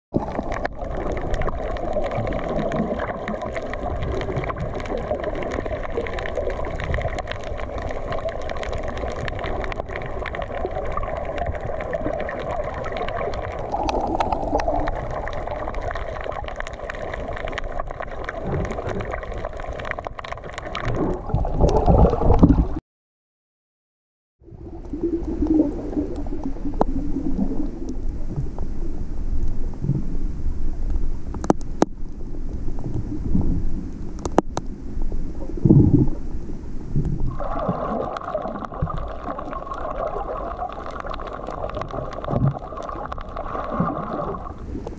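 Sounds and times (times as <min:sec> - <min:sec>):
muffled underwater rushing: 0:00.2 - 0:22.8, 0:24.4 - 0:44.9.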